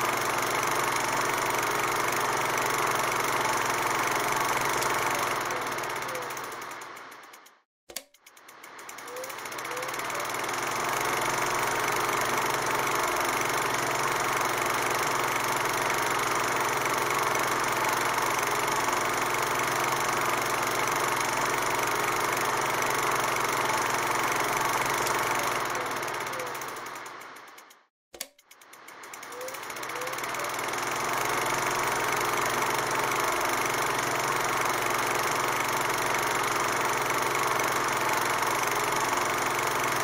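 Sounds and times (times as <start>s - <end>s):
mechanical whirring: 5.2s - 11.1s, 25.3s - 31.2s.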